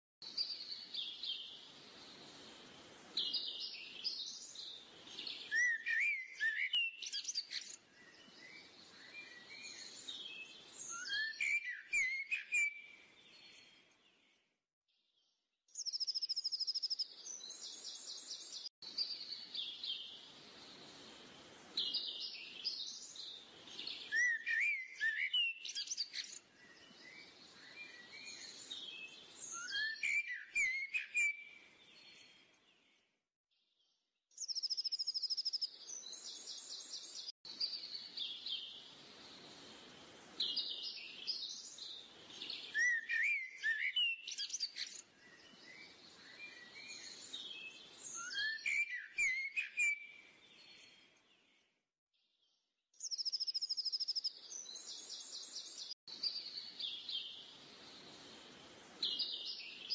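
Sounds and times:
soft hiss: 0.3s - 5.7s, 17.2s - 24.8s, 35.8s - 43.2s, 54.5s - 59.9s.

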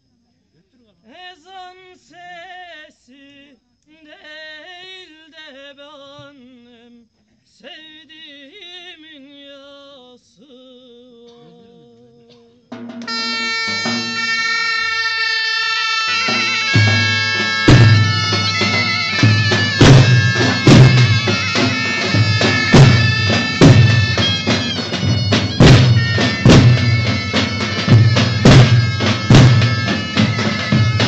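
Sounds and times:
man singing unaccompanied: 1.0s - 12.9s
shrill zurna: 12.9s - 31.0s
bass drum beating: 16.2s - 31.0s.

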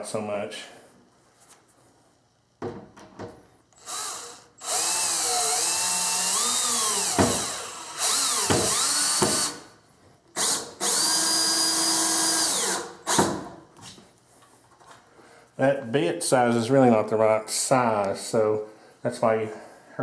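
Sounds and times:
cordless drill driving screws: 3.8s - 9.6s, 10.4s - 13.3s.

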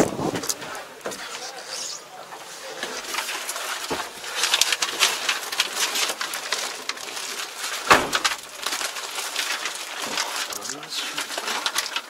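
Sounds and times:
plastic film crackling and rustling: 0.0s - 12.0s
thump: 7.9s - 8.4s.

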